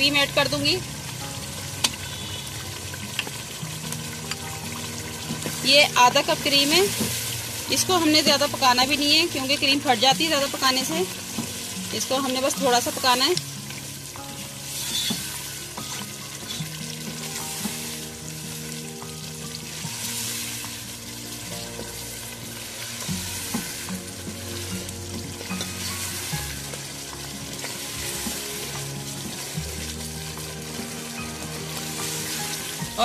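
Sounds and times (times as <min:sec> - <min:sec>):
chicken sizzling in gravy: 0:00.0 - 0:33.0
wooden spoon scraping a pan: 0:14.6 - 0:18.1.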